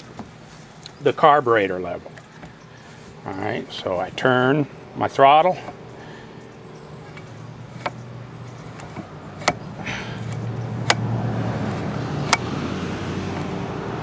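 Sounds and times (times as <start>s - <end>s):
low steady hum: 0.0s - 14.0s
throttle linkage clicks: 7.0s - 11.1s, 11.7s - 12.5s.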